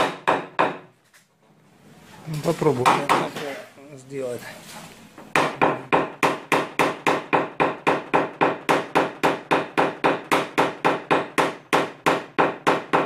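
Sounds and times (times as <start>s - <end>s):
hammer tapping sheet metal: 2.8s - 3.5s.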